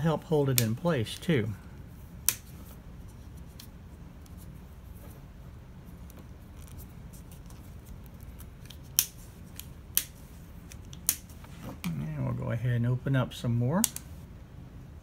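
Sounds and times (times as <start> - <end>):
faint handling noise: 2.4 - 12.3.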